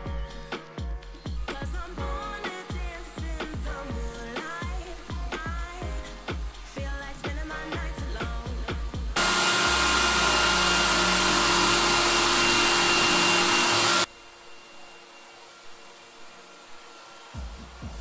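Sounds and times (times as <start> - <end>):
music: 0.0 - 9.2, 17.4 - 18.0
cordless drill boring into wood: 9.2 - 14.1.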